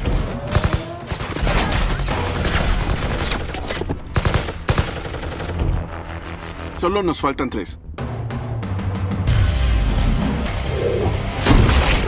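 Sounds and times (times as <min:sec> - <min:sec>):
gunshots: 0:00.0 - 0:05.9.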